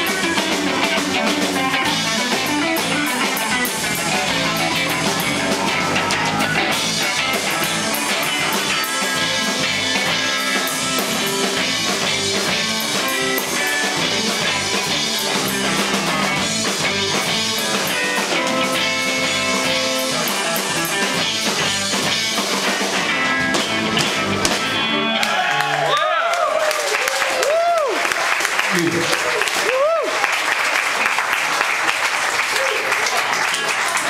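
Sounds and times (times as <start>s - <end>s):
electric guitar: 0.0s - 25.9s
bass guitar: 0.0s - 26.5s
drums: 0.0s - 34.0s.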